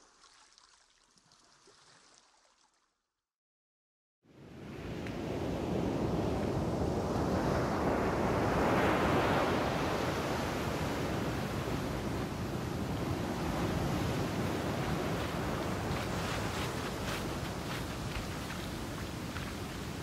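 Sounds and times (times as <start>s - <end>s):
wind buffeting microphone: 5.2s - 20.0s
surf breaking on rocky shore: 13.2s - 20.0s.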